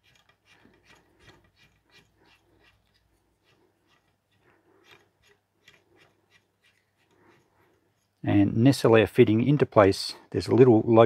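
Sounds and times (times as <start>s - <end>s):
cord rustling through hand: 0.0s - 8.7s.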